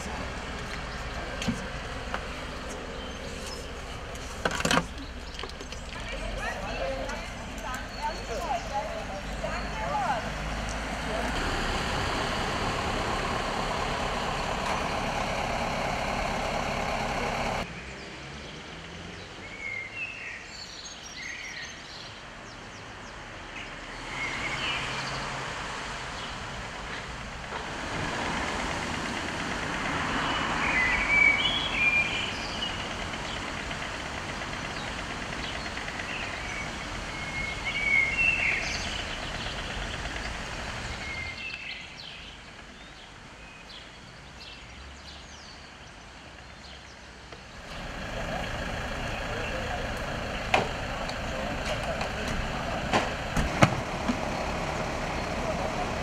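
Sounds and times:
small birds chirping: 0.0s - 11.4s, 29.0s - 53.4s
truck engine running: 0.0s - 17.7s, 26.0s - 41.4s, 47.4s - 56.0s
traffic noise: 0.0s - 56.0s.

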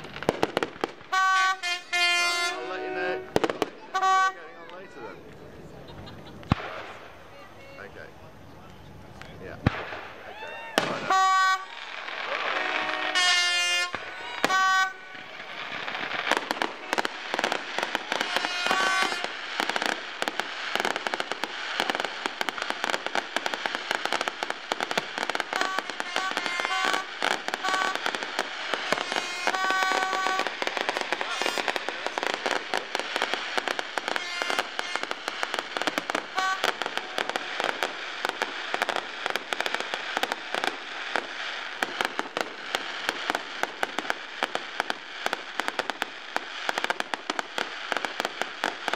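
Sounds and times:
fireworks crackling and popping: 0.0s - 48.9s
horn toots: 1.1s - 4.5s, 11.0s - 11.7s, 12.3s - 15.3s, 16.6s - 19.3s, 25.6s - 28.1s, 28.8s - 32.2s, 34.1s - 35.4s, 36.3s - 37.7s.

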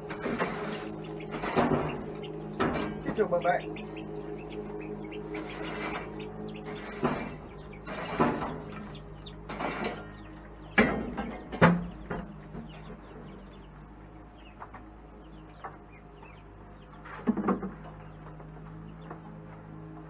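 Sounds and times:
chicks peeping: 0.0s - 20.0s
low steady hum: 0.0s - 20.0s
sharp knocks: 0.1s - 3.4s, 5.3s - 13.0s.

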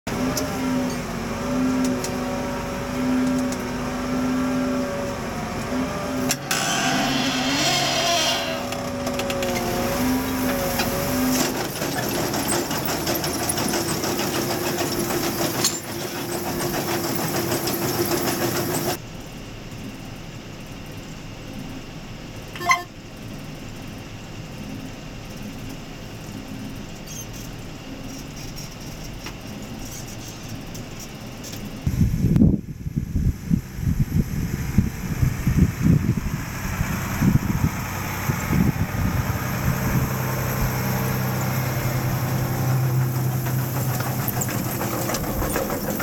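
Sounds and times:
muffled engine drone in cab: 0.1s - 12.0s, 18.6s - 46.0s
tractor engine running: 0.1s - 19.0s, 28.8s - 46.0s
digger rods rattling: 6.4s - 19.0s, 41.2s - 46.0s
brief tone: 22.5s - 23.0s.

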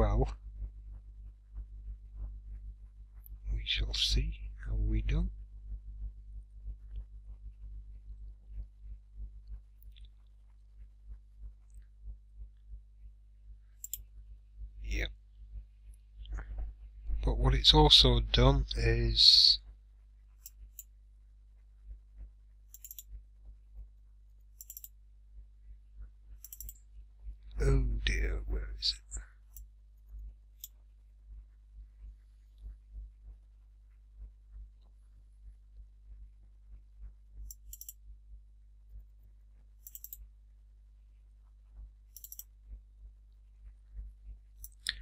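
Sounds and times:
steady low hum: 0.0s - 45.0s
faint clicks and taps: 0.4s - 3.5s, 5.4s - 12.8s, 29.1s - 38.1s
rapid clicks: 22.2s - 23.2s, 24.5s - 25.0s, 26.3s - 26.8s, 37.0s - 38.0s, 39.8s - 40.3s, 42.1s - 42.8s.

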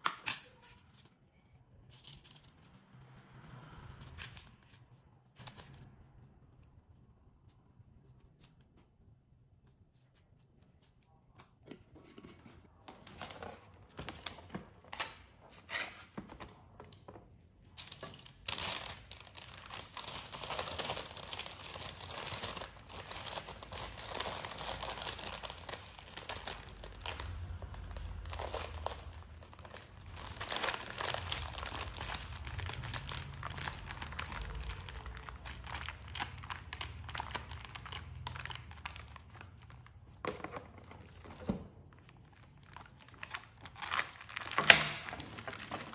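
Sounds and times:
parchment paper crinkling: 17.7s - 40.2s, 41.9s - 45.9s.

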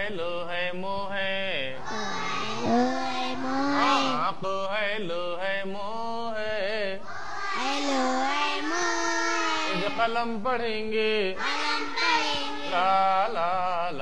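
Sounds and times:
voices chanting syllables: 1.8s - 4.4s, 7.0s - 10.4s, 11.2s - 14.0s.

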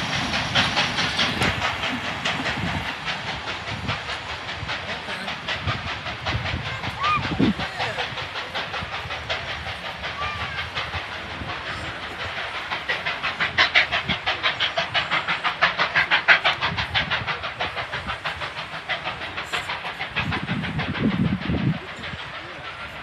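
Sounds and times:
steam locomotive chuffing: 0.0s - 23.0s.

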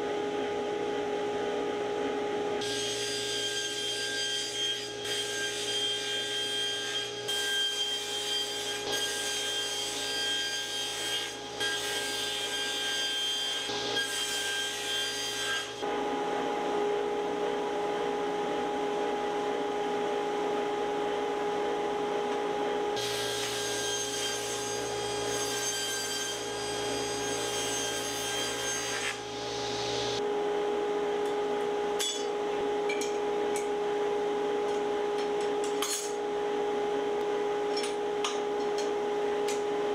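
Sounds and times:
table saw cutting wood: 2.6s - 16.9s, 23.0s - 30.2s.

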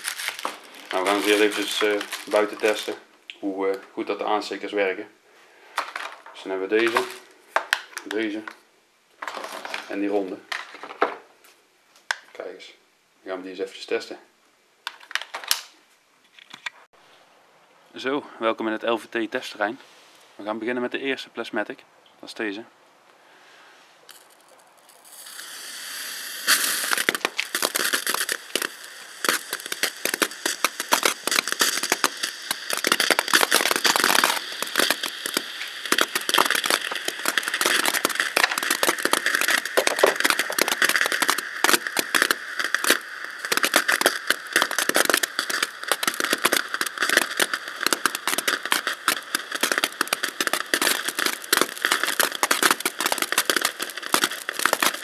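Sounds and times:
firework fountain crackling: 0.0s - 3.1s, 5.6s - 8.4s, 24.1s - 55.0s.

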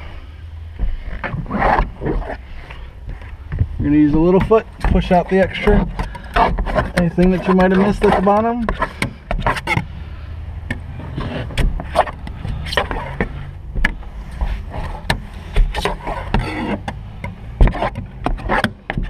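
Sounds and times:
low hum: 0.0s - 6.3s
plastic squeegee knocking and scraping: 0.8s - 9.9s, 10.7s - 19.0s.

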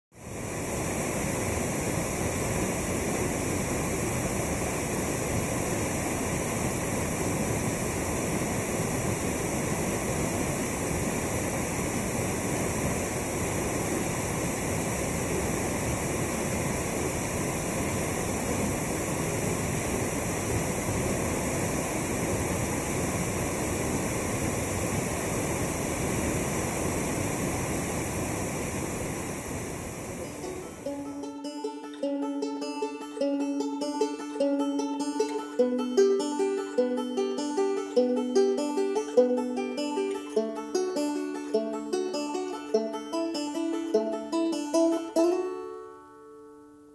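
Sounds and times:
waterfall rushing: 0.2s - 31.5s.

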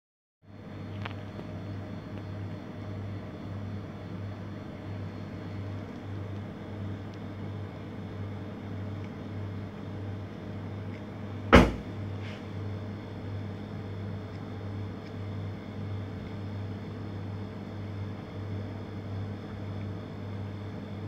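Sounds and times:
low machine hum: 0.4s - 21.0s
sharp loud thump: 11.5s - 11.9s.

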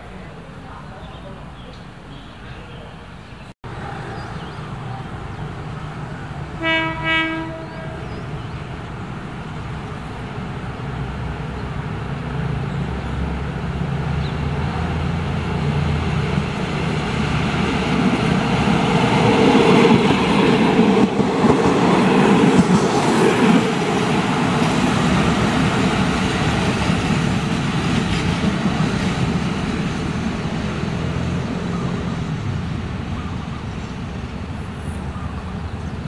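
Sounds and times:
train engine and wheels rumbling: 0.0s - 36.0s
train horn blasts: 6.6s - 8.1s.

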